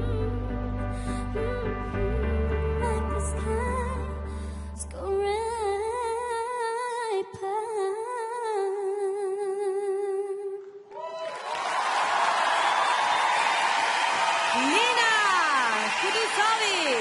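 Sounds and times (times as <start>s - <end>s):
girl singing into a microphone: 2.8s - 10.8s.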